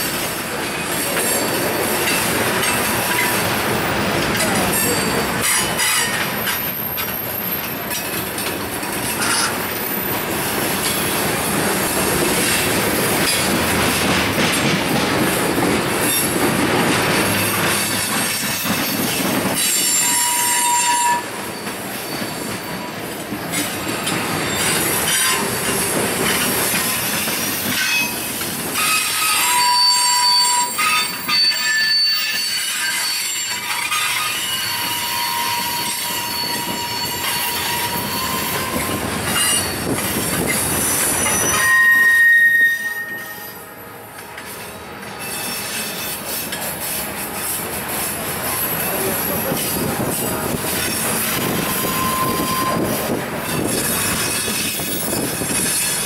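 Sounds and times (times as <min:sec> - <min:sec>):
train wheels rumbling on rails: 0:00.0 - 0:56.0
wheel flanges squealing: 0:00.8 - 0:08.4, 0:17.4 - 0:43.6, 0:44.5 - 0:47.6, 0:48.5 - 0:56.0.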